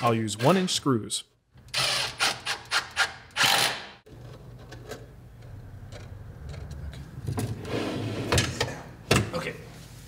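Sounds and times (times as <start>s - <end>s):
power drill driving screws: 1.7s - 3.9s.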